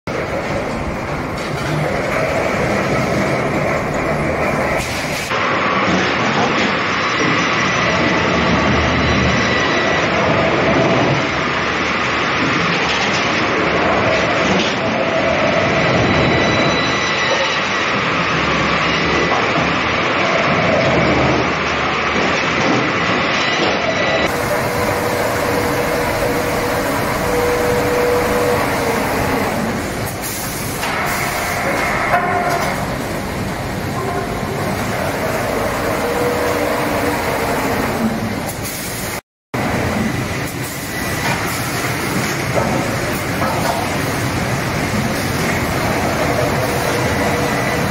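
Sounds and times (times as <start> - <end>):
machinery rattling: 15.6 - 38.6.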